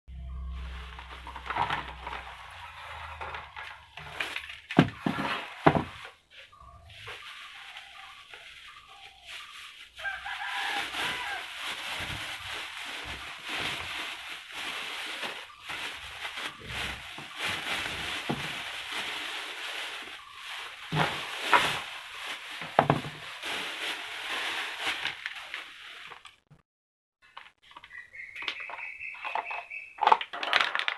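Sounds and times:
plastic bag rustling: 0:00.3 - 0:26.4, 0:30.0 - 0:30.9.

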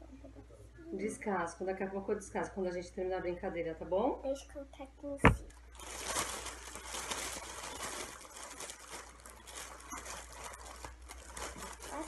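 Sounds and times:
hands rummaging in fabric bag: 0:05.8 - 0:12.0.

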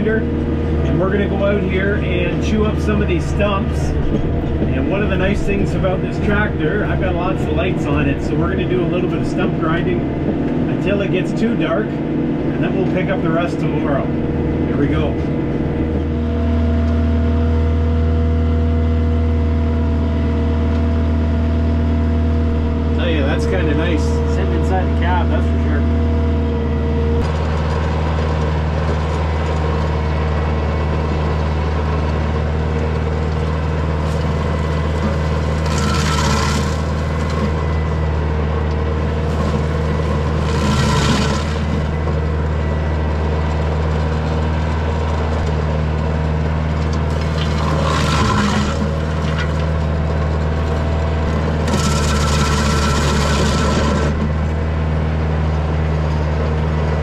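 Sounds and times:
stump grinder grinding wood: 0:00.0 - 0:57.0
tractor diesel engine running: 0:00.0 - 0:57.0.

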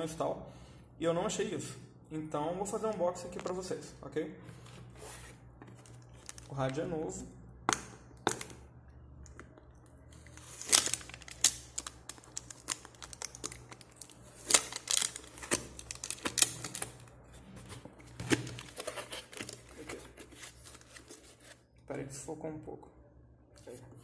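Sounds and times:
cardboard scraping and rustling: 0:04.5 - 0:06.4.

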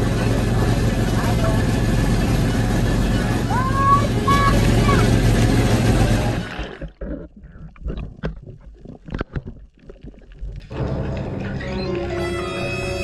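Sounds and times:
boat engine running: 0:00.0 - 0:09.7
underwater bubbles gurgling: 0:00.0 - 0:11.2
water rushing: 0:00.0 - 0:13.0
sharp underwater clicks and crackles: 0:04.4 - 0:11.3.

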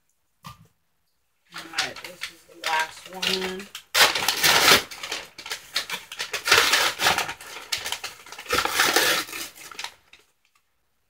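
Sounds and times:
paper crinkling and rustling: 0:01.5 - 0:10.4.

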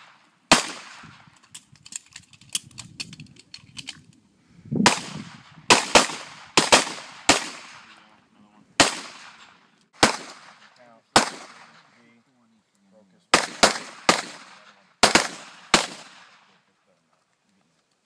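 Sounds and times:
pistol shots: 0:00.0 - 0:01.2, 0:04.8 - 0:08.0, 0:08.8 - 0:11.9, 0:13.3 - 0:16.4.

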